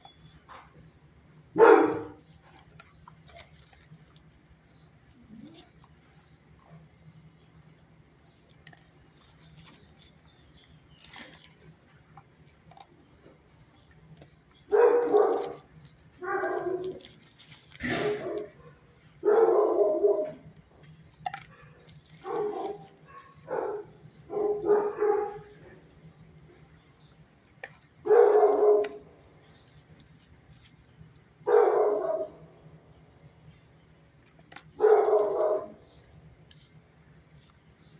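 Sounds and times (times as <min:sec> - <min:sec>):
dog barking: 0:01.6 - 0:02.2, 0:14.7 - 0:15.6, 0:16.2 - 0:17.0, 0:17.8 - 0:20.4, 0:22.2 - 0:25.5, 0:28.0 - 0:29.0, 0:31.5 - 0:32.4, 0:34.8 - 0:35.8.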